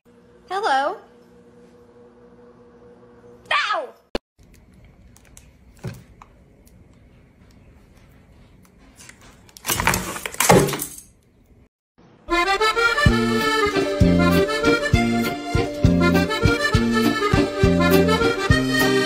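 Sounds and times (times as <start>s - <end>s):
accordion music: 12.2s - 19.0s.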